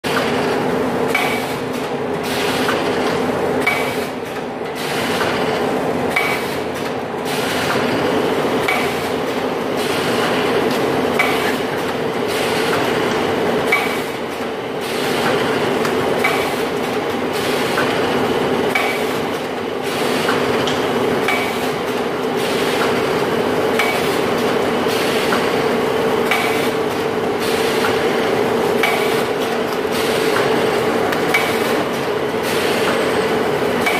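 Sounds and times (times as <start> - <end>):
machine clacking: 8.6 - 23.1, 23.7 - 25.6, 26.2 - 33.9.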